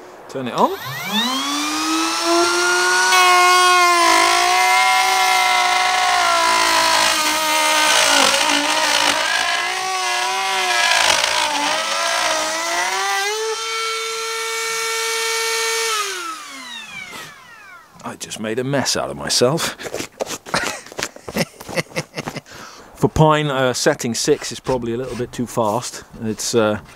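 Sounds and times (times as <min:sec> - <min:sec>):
router bit rasping wood: 0:00.6 - 0:17.9
router motor whine: 0:00.6 - 0:17.9.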